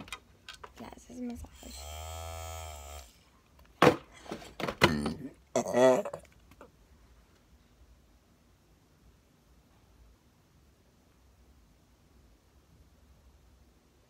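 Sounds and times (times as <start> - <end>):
handheld massager buzzing: 1.6 - 3.2.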